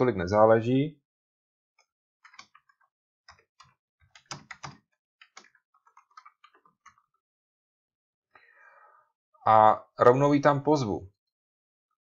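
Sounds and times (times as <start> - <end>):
typing on keyboard: 2.2 - 7.2.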